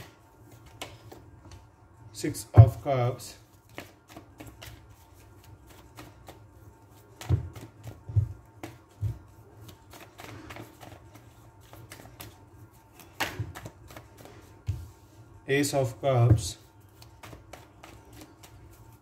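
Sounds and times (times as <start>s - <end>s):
cards shuffling and clicking: 3.6s - 14.6s, 16.9s - 19.0s.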